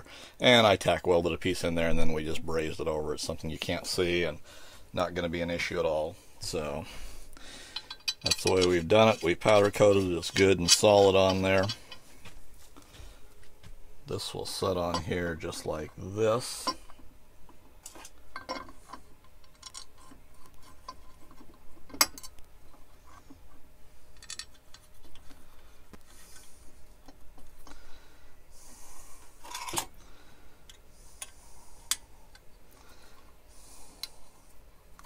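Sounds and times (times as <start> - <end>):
light metal clinks and knocks: 7.7 - 12.1.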